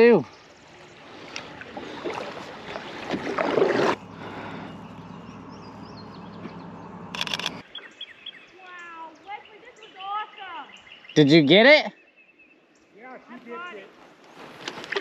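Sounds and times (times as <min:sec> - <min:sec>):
kayak paddle splashing: 0:00.0 - 0:07.1, 0:14.4 - 0:15.0
wash of moving water: 0:00.0 - 0:07.2
camera shutter burst: 0:07.1 - 0:07.6.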